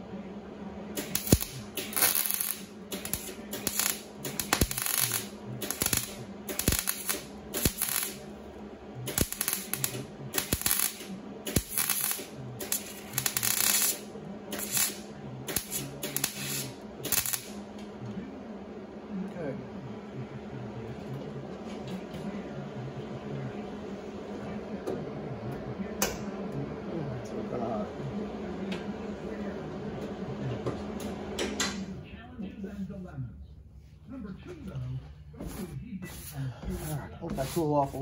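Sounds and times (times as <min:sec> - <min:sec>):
welder crackling bursts: 0:01.0 - 0:08.3, 0:09.0 - 0:17.6.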